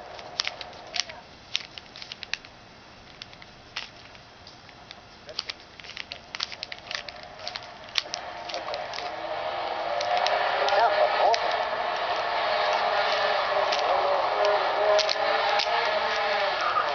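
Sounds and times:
plastic cube clicking as twisted: 0.1s - 2.5s, 5.3s - 9.1s, 13.1s - 15.8s.

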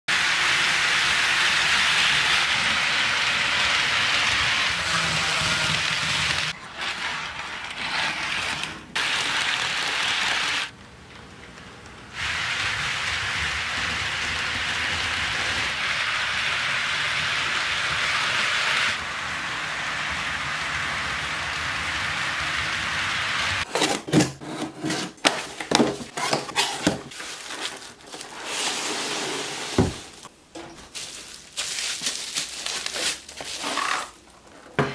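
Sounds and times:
model trains rolling on track: 0.2s - 10.7s, 11.4s - 23.6s.

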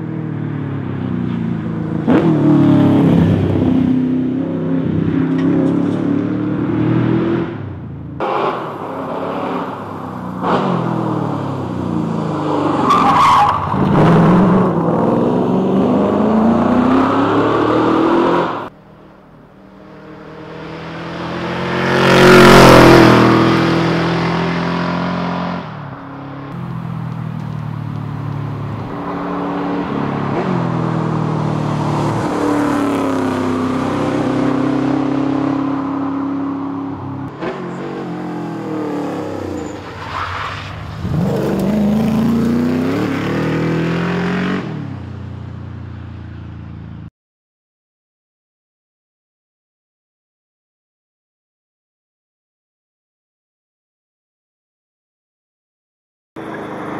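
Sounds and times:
car engine revving: 20.0s - 39.8s.

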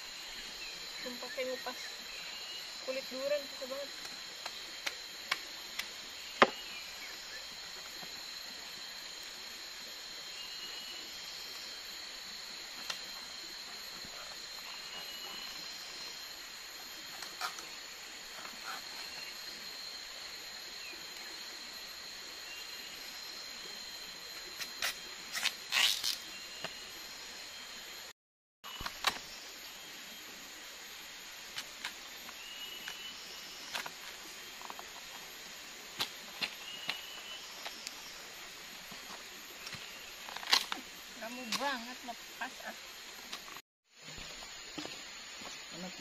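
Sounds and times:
insect drone: 0.0s - 46.0s
palm shoot cracking and tearing: 24.6s - 26.2s, 40.2s - 40.8s.

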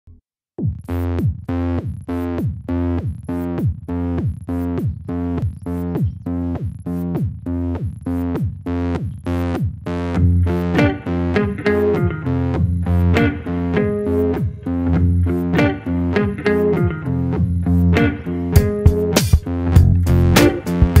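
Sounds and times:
drum machine beat: 0.6s - 10.0s, 10.6s - 12.2s, 17.8s - 21.0s
electronic synthesizer music: 0.9s - 21.0s.

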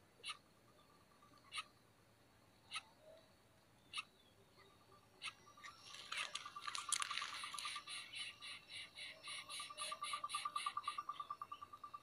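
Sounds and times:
rustle of dry leaves: 5.6s - 8.0s.

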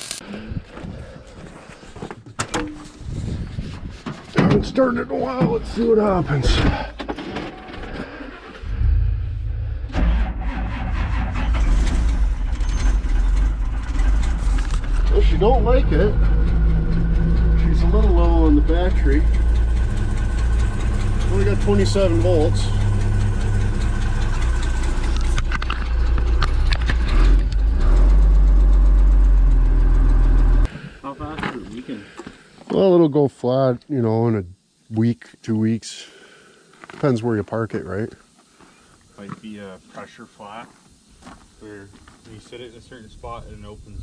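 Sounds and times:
diesel engine cranking: 5.3s - 31.1s.

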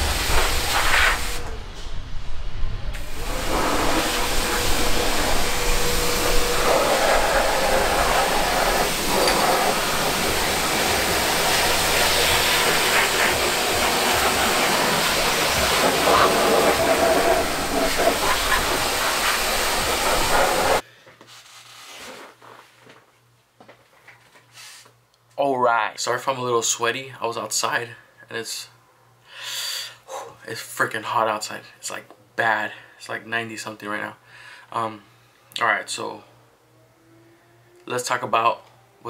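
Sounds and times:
loud rushing workshop hiss: 0.0s - 20.8s.

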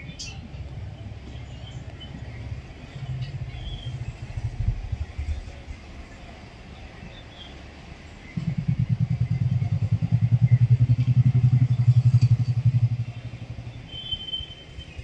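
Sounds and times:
motorcycle engine running: 8.3s - 14.1s.

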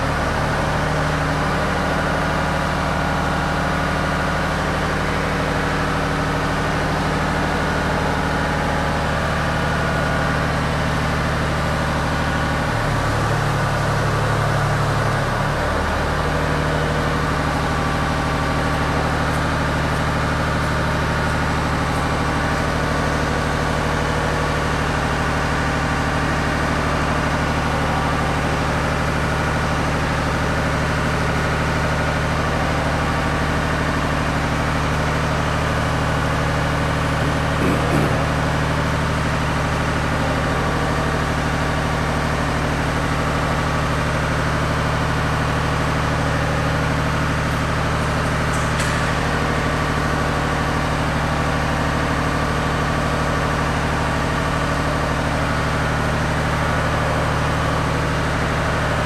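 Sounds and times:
boom lift power unit humming: 0.0s - 59.0s.

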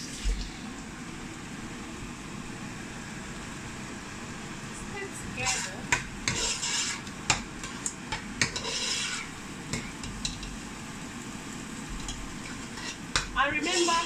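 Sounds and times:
metal spoon stirring in pot: 5.4s - 10.6s, 12.0s - 14.0s.

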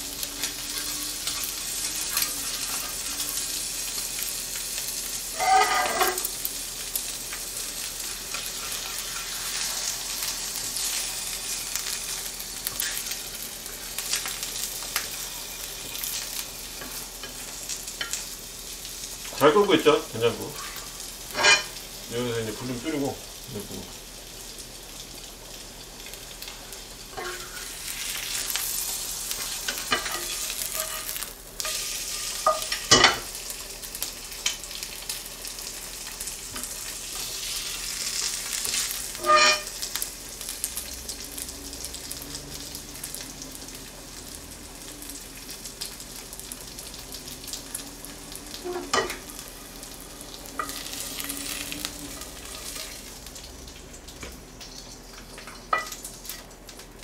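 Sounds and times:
egg sizzling in a frying pan: 0.0s - 57.0s
wooden spatula scraping a pan: 5.3s - 6.3s, 29.4s - 32.6s, 39.1s - 39.7s.

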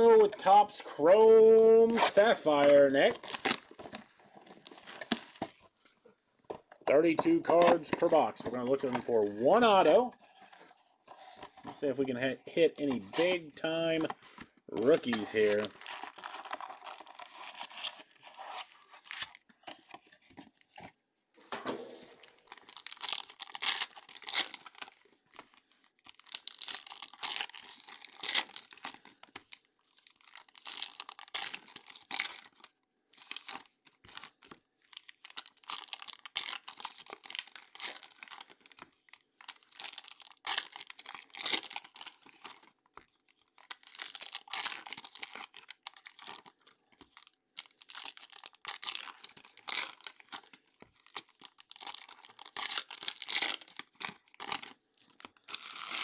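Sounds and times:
card packs tearing open: 1.8s - 5.6s, 12.8s - 19.4s, 22.0s - 42.8s, 43.4s - 56.0s
wrappers crinkling: 1.9s - 5.8s, 14.8s - 18.3s, 22.0s - 56.0s.

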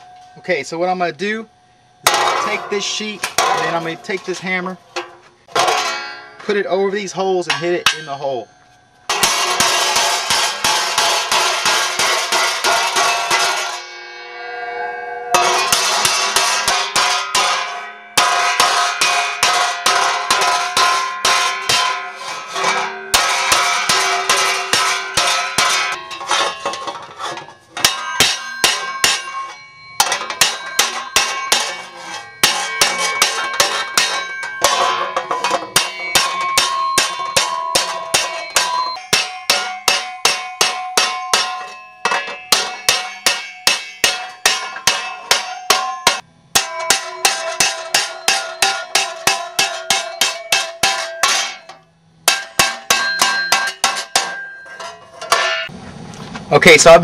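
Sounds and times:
hammer striking steel sheet: 2.0s - 6.4s, 7.4s - 8.4s, 9.1s - 55.7s.

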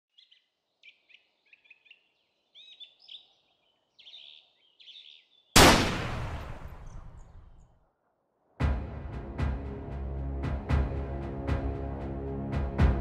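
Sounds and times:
birds chirping: 0.1s - 7.6s
loud bang: 5.6s - 7.5s.

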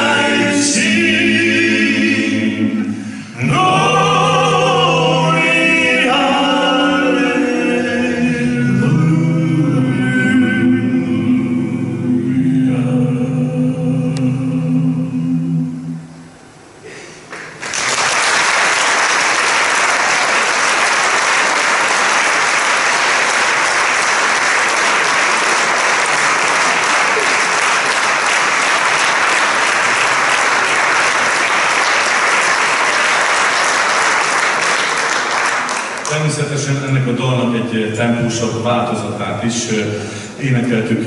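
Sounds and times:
male vocal group singing: 0.0s - 16.0s
audience applause: 17.3s - 36.4s.

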